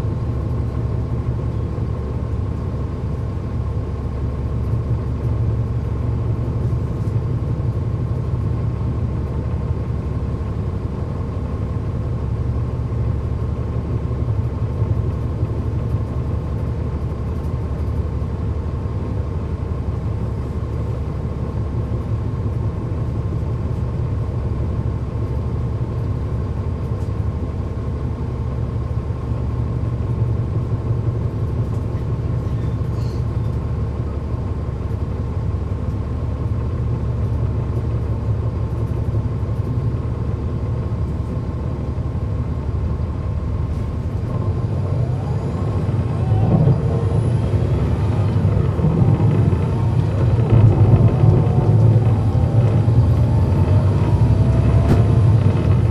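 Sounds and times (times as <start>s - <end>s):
diesel bus engine running: 0.0s - 55.9s.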